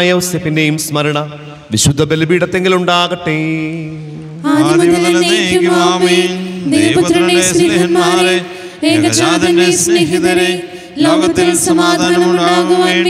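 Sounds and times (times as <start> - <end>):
liturgical chant: 3.3 - 13.0.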